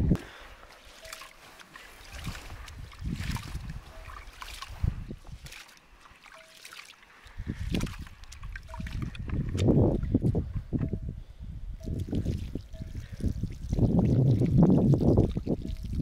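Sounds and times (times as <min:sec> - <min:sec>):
water sloshing in a basin: 0:00.8 - 0:10.0.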